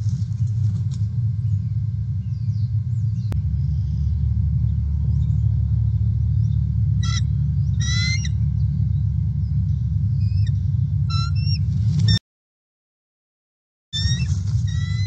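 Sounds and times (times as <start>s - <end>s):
low rumble: 0.0s - 12.2s, 14.0s - 15.0s
eagle piping calls: 6.4s - 8.8s, 9.4s - 12.2s, 14.0s - 15.0s.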